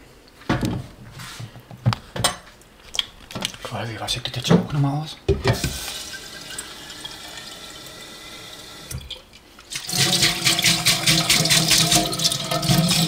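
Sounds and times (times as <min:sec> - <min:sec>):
tap water running: 0:05.4 - 0:13.0.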